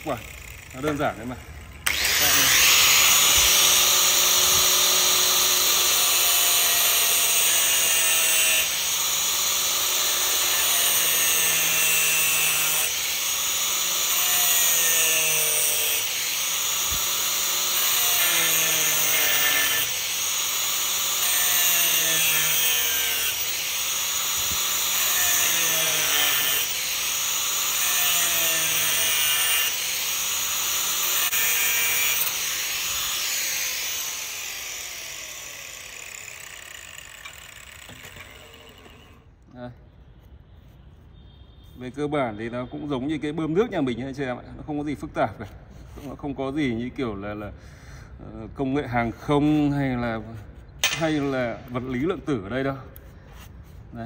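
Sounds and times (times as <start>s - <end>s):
angle grinder cutting metal: 0.0s - 39.3s.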